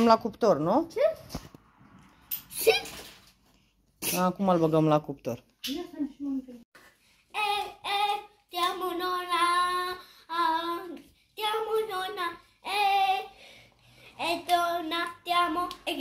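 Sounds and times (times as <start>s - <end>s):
boy singing: 7.3s - 13.4s, 14.1s - 16.0s.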